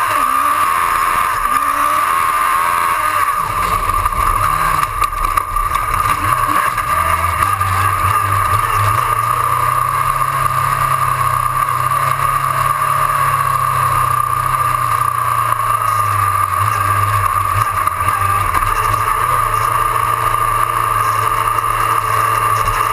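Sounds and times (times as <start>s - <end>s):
constant steady whine: 0.0s - 22.9s
race car engine running hard: 0.0s - 22.9s.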